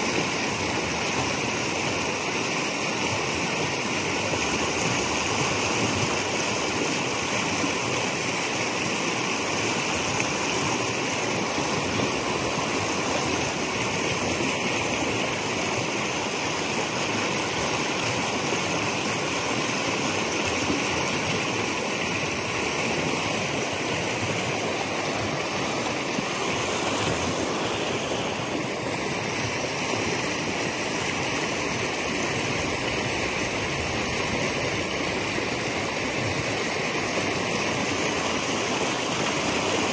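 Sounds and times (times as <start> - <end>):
creek water rushing and gurgling: 0.0 - 39.9.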